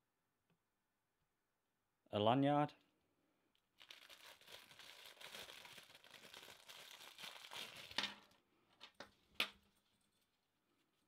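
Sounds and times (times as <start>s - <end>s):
plastic bag crinkling: 3.8s - 11.0s.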